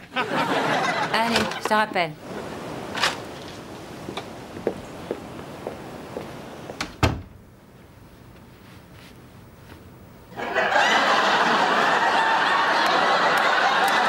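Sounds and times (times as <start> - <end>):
studio audience laughing: 0.0 - 1.7, 10.4 - 14.0
door shutting: 2.9 - 3.6, 6.8 - 7.4.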